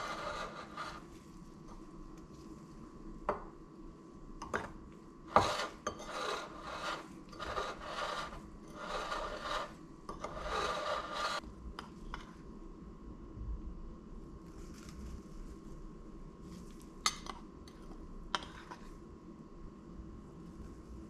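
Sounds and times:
spoon scraping flour in bowl: 0:00.0 - 0:01.1, 0:05.3 - 0:11.4.

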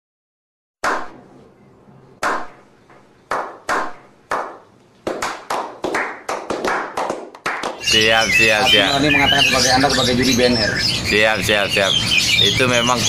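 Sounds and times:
hand clapping: 0:02.2 - 0:02.6, 0:03.3 - 0:07.9.

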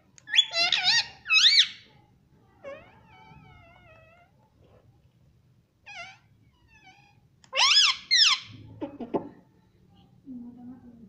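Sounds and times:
parrot calling: 0:00.3 - 0:01.9, 0:05.9 - 0:08.6.

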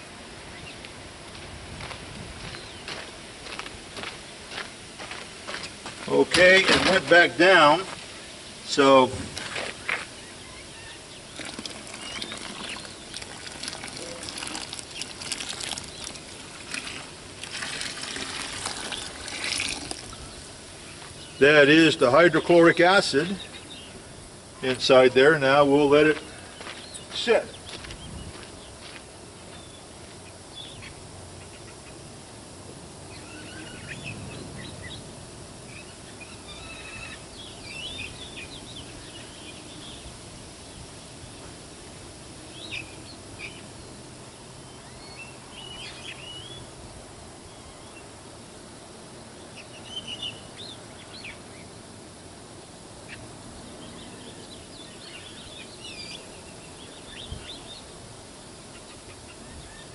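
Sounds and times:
birds chirping: 0:00.0 - 0:01.3, 0:02.4 - 0:32.1, 0:33.0 - 0:35.1, 0:35.7 - 0:41.6, 0:42.4 - 0:46.8, 0:49.2 - 0:52.0, 0:52.6 - 0:59.9
outdoor background hiss: 0:00.0 - 0:59.9.

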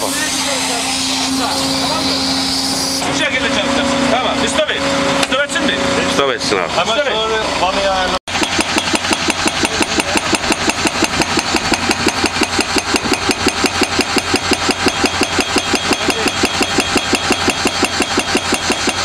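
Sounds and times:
diesel engine running: 0:00.0 - 0:19.0
hydraulic breaker hammering rock: 0:08.3 - 0:19.0.

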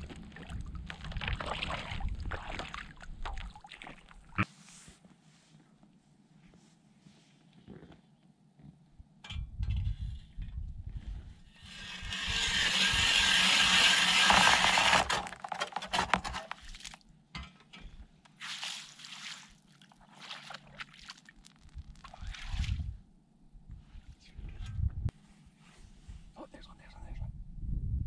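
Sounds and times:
wet slushy sounds: 0:00.0 - 0:04.4, 0:18.4 - 0:22.8
ice auger grinding scrape: 0:11.5 - 0:16.6.

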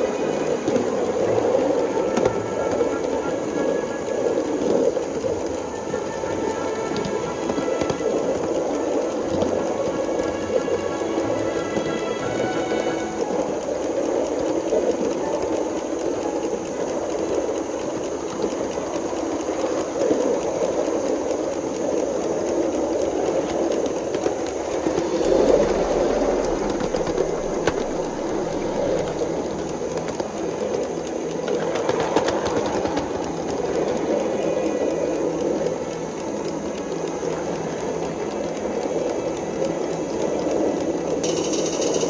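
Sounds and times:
model steam locomotive chatter: 0:00.0 - 0:42.0
low rumble: 0:23.6 - 0:31.2.

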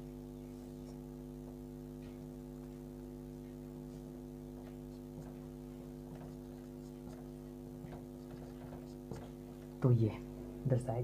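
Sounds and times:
electrical mains hum: 0:00.0 - 0:11.0
marker drawing on whiteboard: 0:03.8 - 0:09.7.

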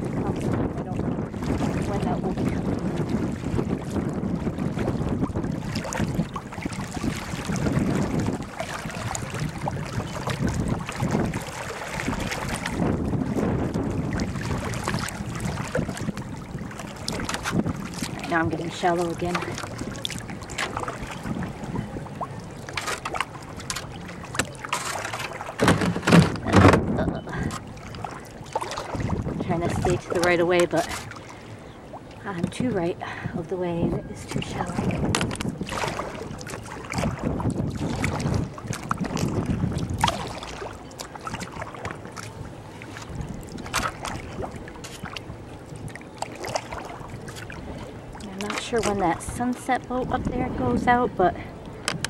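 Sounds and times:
water trickling: 0:00.0 - 0:25.6
paddle splashing water: 0:00.0 - 0:52.0
wind on the microphone: 0:00.0 - 0:52.0.

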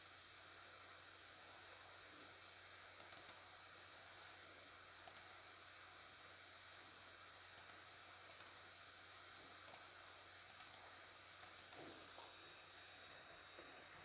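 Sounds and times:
low steady hiss and hum: 0:00.0 - 0:14.0
computer mouse clicks: 0:03.0 - 0:03.4, 0:05.0 - 0:05.3, 0:07.6 - 0:08.6, 0:09.6 - 0:09.9, 0:10.5 - 0:10.8, 0:11.4 - 0:12.6.

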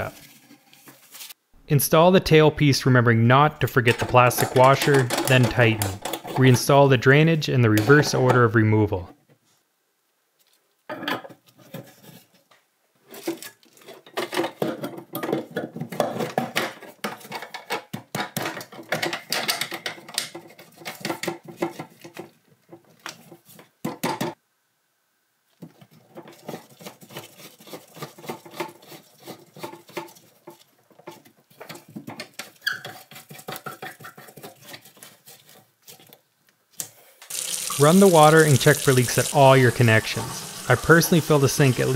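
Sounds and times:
plastic pipes clicking and knocking: 0:03.8 - 0:06.7, 0:14.1 - 0:24.4, 0:29.6 - 0:34.6.

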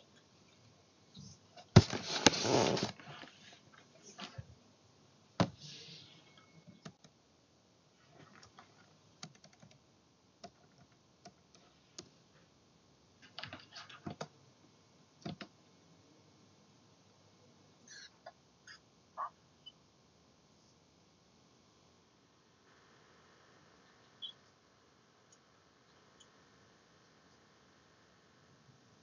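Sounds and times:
computer keyboard and mouse clicks: 0:09.2 - 0:09.8, 0:10.4 - 0:12.1, 0:15.2 - 0:15.5.

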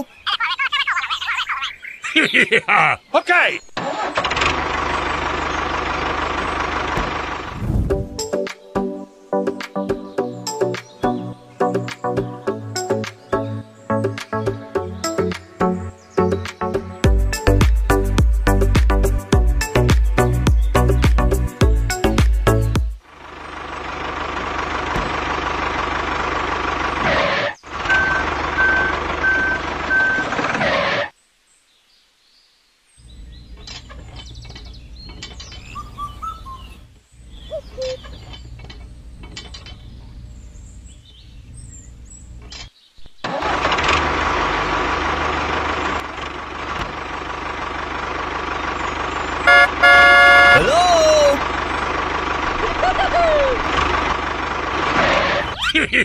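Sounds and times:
model tractor engine noise: 0:03.7 - 0:07.7, 0:23.0 - 0:31.2, 0:41.8 - 0:56.0.

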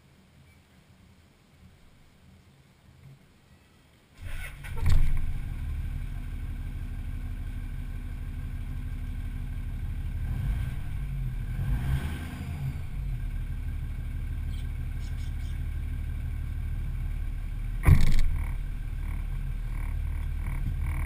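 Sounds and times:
diesel engine idling: 0:04.2 - 0:12.0, 0:12.6 - 0:21.0
diesel engine cranking and starting: 0:04.2 - 0:21.0.

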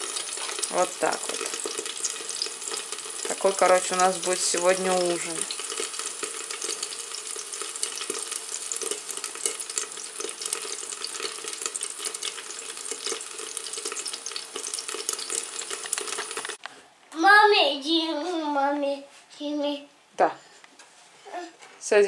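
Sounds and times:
eggplant sizzling in oil: 0:00.0 - 0:16.6.

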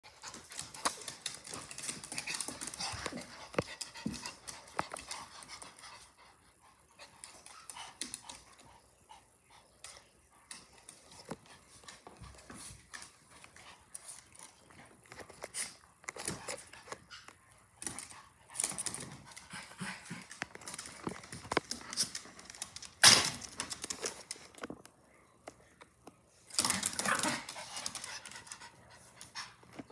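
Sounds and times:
dogs scuffling: 0:00.0 - 0:06.1, 0:09.8 - 0:24.9, 0:26.4 - 0:29.9
dogs panting: 0:00.0 - 0:22.4.

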